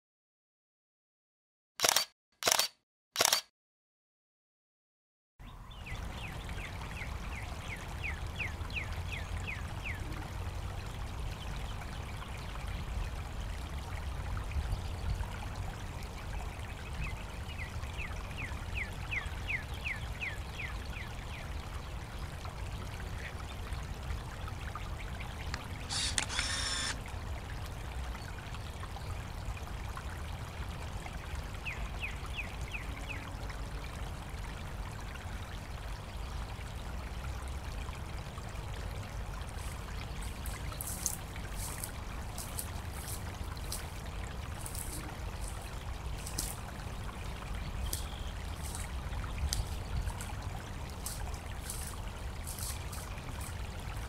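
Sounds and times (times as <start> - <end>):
shallow water trickling: 5.4 - 54.0
rapid high chirps: 25.9 - 27.0.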